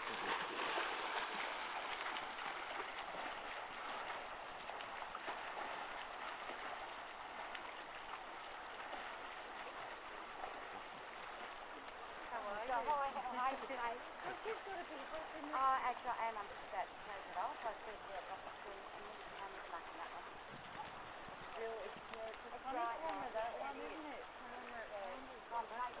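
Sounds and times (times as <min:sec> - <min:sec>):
swimmers splashing in pool water: 0:00.0 - 0:26.0.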